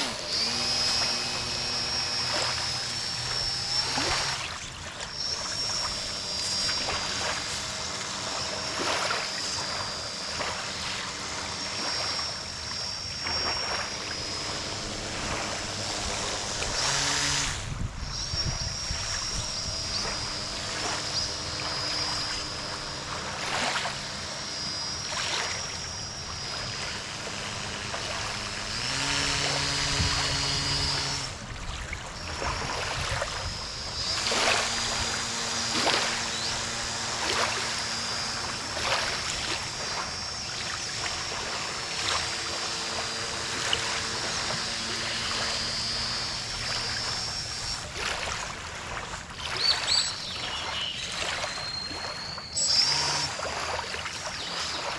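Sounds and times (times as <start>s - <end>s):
electric motor whine: 0.0s - 54.9s
water splashing: 37.2s - 45.5s, 47.8s - 50.0s, 53.3s - 54.9s.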